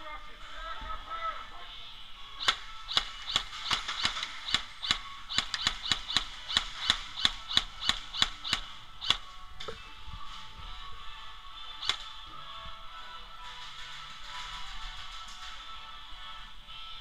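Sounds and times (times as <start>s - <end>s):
airsoft gun firing sharp cracks: 2.4s - 9.4s, 11.8s - 12.2s.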